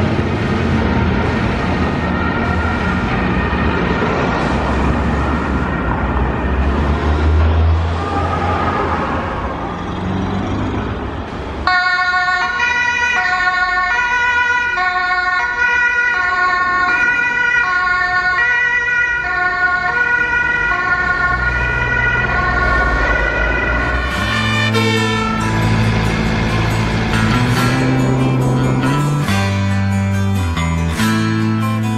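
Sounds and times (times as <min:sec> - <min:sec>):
low rumble of vehicles pulling away: 0:00.0 - 0:11.6, 0:18.7 - 0:31.9
two-tone emergency horn: 0:23.8 - 0:29.3.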